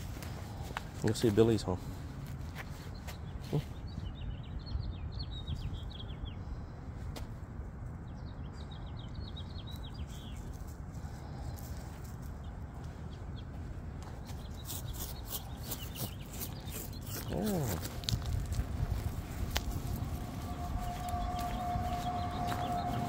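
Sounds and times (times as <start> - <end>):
songbird chirping: 8.0 - 23.0
steady low rumble: 17.3 - 23.0.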